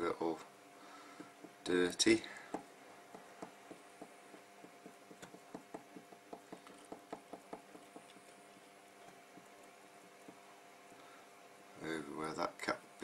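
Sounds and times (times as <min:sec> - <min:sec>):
faint steady hum: 0:00.0 - 0:13.0
cotton swab dabbing ticks: 0:03.1 - 0:11.0.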